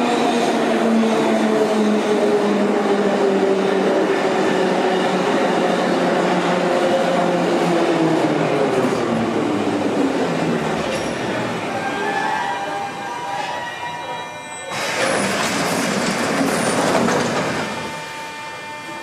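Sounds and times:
metro train whine falling in pitch: 11.3 - 15.2, 17.1 - 19.0
wheels rumbling on rails: 14.7 - 18.0.

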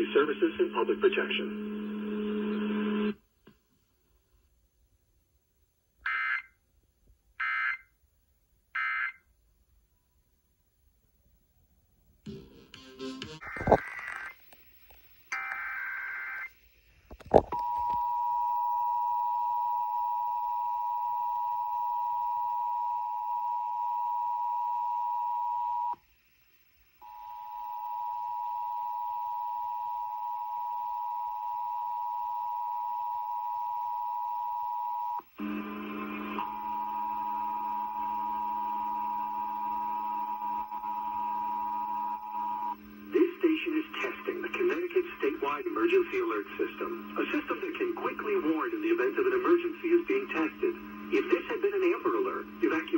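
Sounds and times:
two-tone alarm from radio: 6.1 - 6.5, 7.4 - 7.9, 8.8 - 9.2
low steady hum: 17.2 - 52.9.

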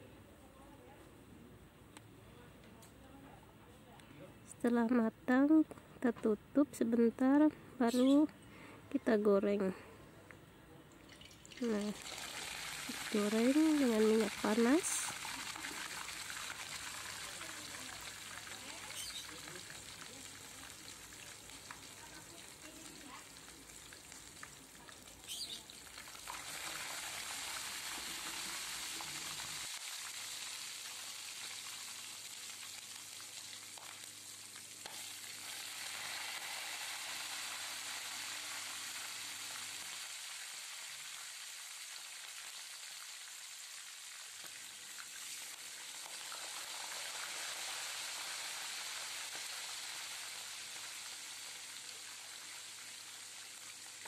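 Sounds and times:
chicken sizzling in oil: 11.1 - 54.0.

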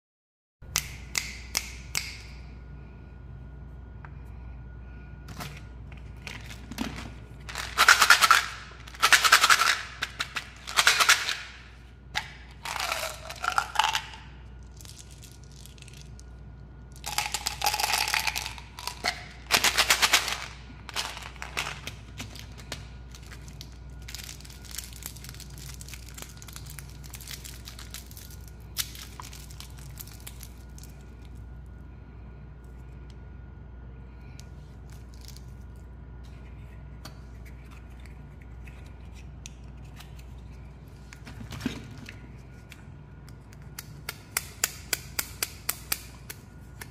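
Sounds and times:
candies rattling in plastic bottle: 6.2 - 11.4, 12.5 - 16.1, 17.0 - 30.9
wrappers crinkling: 17.0 - 31.0.

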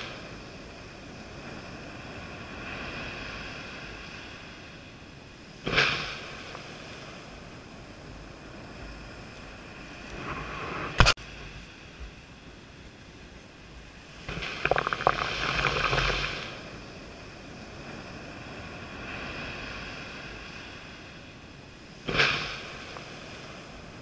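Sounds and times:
surf washing up a beach: 0.0 - 24.0
wave rushing over sand: 0.0 - 24.0
crackling fizzing foam: 14.3 - 16.7.

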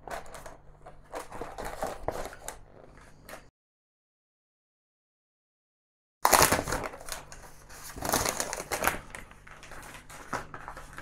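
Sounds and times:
plastic sheet rustling and crinkling: 0.0 - 3.5, 6.2 - 11.0.

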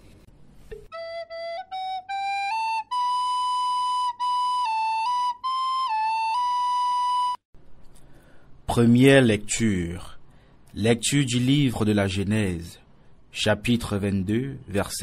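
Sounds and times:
solo flute melody: 0.9 - 7.5.

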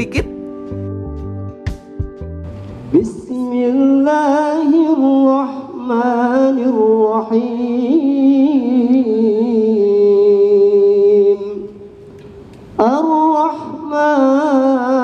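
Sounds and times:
man chanting a recitation: 3.0 - 11.8, 12.8 - 15.0.

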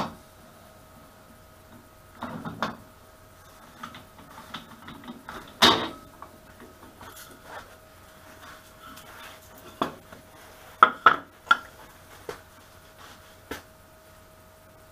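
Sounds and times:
faint steady hum: 0.0 - 14.9.

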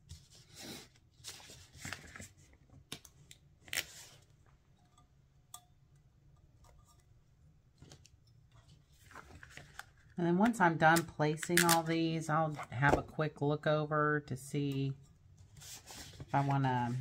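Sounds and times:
vinyl sheet rustling and crinkling: 0.0 - 2.9, 7.8 - 10.2, 15.4 - 17.0.

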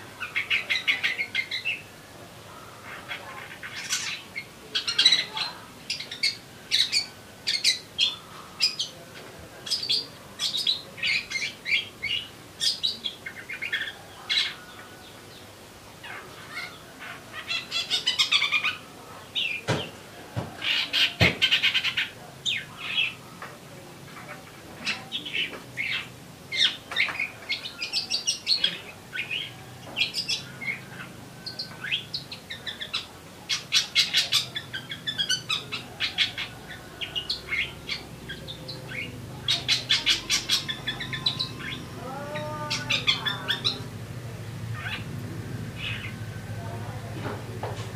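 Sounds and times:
songbird chirping and trilling: 0.0 - 47.9.

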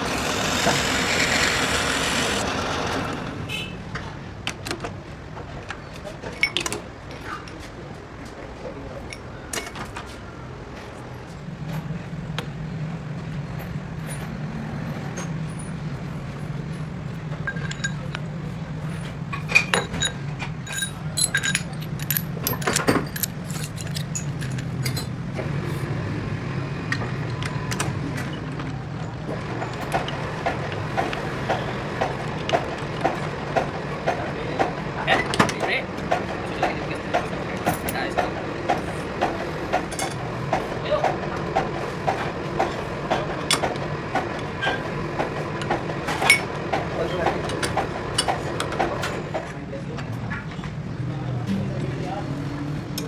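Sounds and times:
metal lathe humming: 0.0 - 3.4
metal clinks: 17.4 - 18.3, 19.5 - 25.1.

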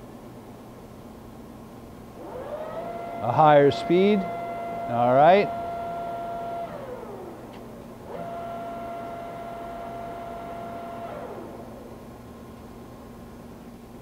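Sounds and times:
lathe spindle whine: 2.2 - 7.4, 8.1 - 11.8.

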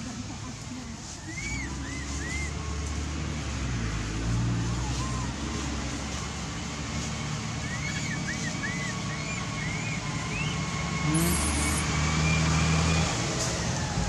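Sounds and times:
motor vehicle engine hum: 0.0 - 14.0
short high chirps: 11.0 - 11.8.

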